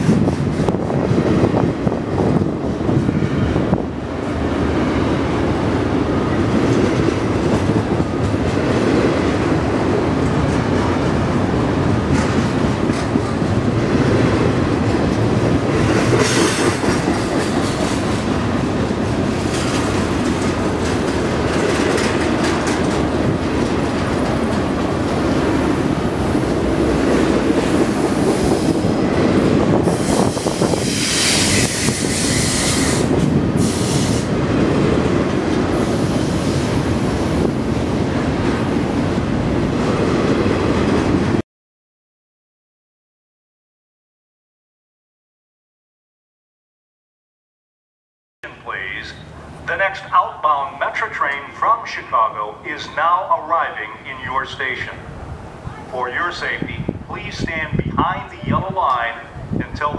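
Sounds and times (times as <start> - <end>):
train wheels rolling on rails: 0.0 - 41.4.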